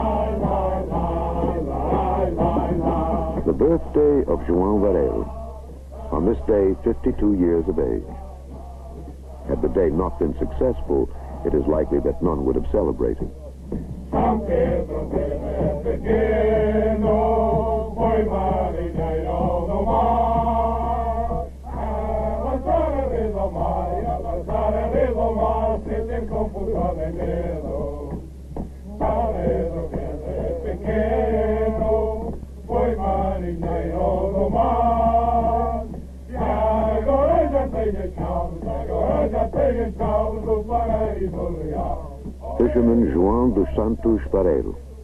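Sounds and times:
men singing in chorus: 0:00.0 - 0:13.3, 0:14.1 - 0:44.8
steady low hum: 0:00.0 - 0:45.0.

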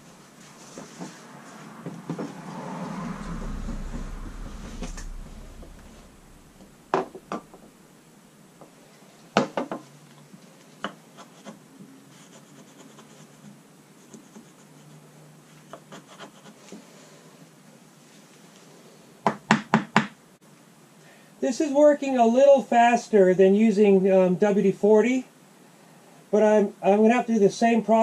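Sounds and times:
faint scraping and rubbing: 0:00.0 - 0:07.8.

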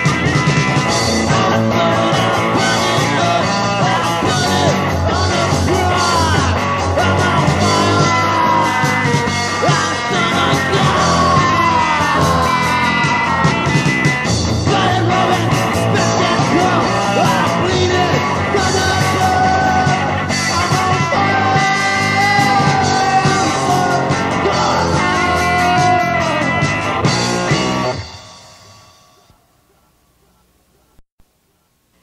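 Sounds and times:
punk rock band playing: 0:00.0 - 0:29.3
person singing: 0:01.1 - 0:13.9, 0:14.5 - 0:26.6.

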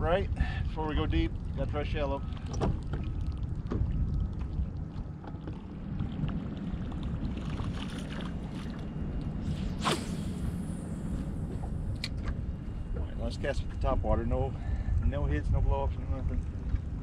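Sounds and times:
faint water sounds: 0:00.0 - 0:17.0
wind rumbling on microphone: 0:00.0 - 0:17.0
short sharp swish: 0:09.5 - 0:10.4.

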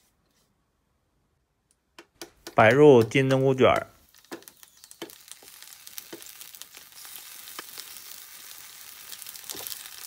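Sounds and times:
oil pops and clicks: 0:02.0 - 0:05.5
hot oil sizzling in a pan: 0:04.0 - 0:10.0.

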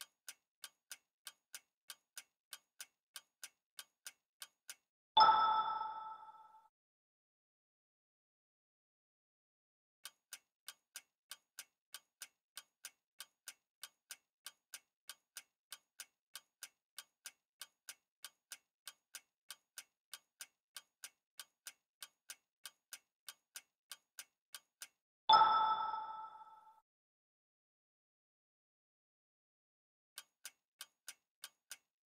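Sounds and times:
clock-like ticking: 0:00.0 - 0:06.4, 0:10.0 - 0:26.6, 0:30.2 - 0:31.9
bright chime: 0:05.2 - 0:06.6, 0:25.3 - 0:26.7.

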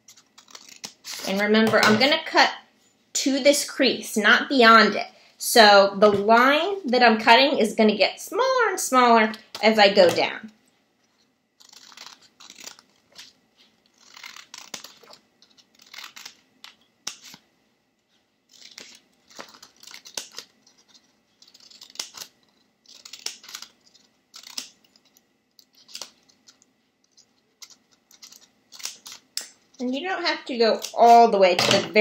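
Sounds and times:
scissors cutting paper: 0:00.0 - 0:02.2, 0:11.1 - 0:17.4, 0:18.5 - 0:32.0.

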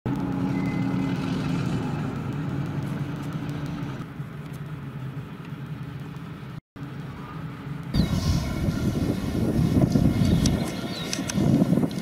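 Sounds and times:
heavy machinery engine running: 0:00.1 - 0:04.1, 0:08.0 - 0:12.0.

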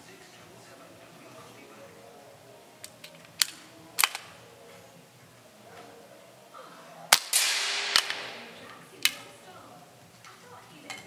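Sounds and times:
air rifle action clicks: 0:02.8 - 0:04.3, 0:07.2 - 0:08.4
air rifle shot crack: 0:07.1 - 0:09.2.

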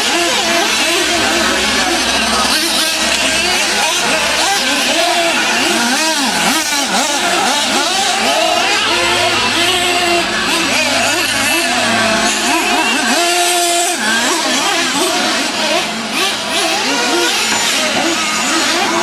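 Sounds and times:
rc truck engines whining: 0:00.0 - 0:19.0.

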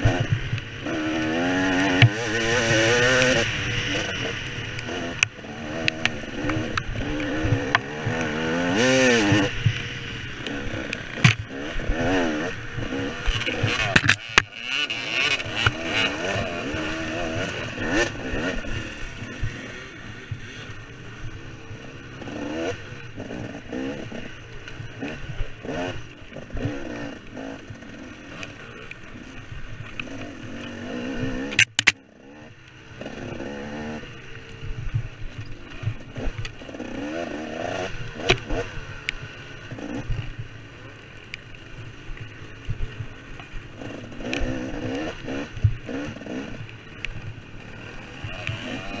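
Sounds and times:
dirt bike engine revving: 0:00.0 - 0:49.0.

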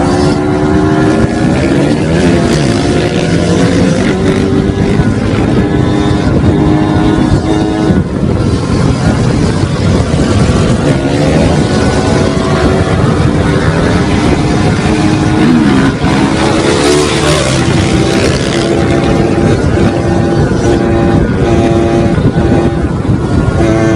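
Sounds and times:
motorcycle engines revving: 0:00.0 - 0:23.9
wind rushing over microphone: 0:00.0 - 0:23.9.

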